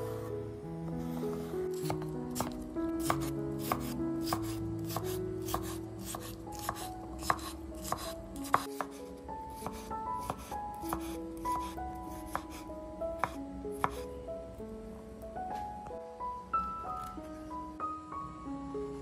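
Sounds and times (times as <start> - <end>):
soft background music: 0.0 - 19.0
knife chopping on wooden board: 1.7 - 9.0, 9.6 - 12.6, 13.2 - 14.0.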